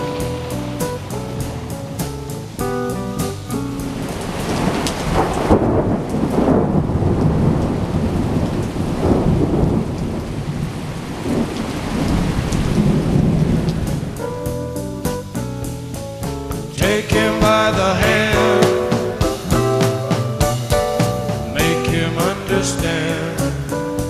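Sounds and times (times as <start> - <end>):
thunder crack and rumbles: 0.0 - 14.8
steady rain: 0.0 - 24.0.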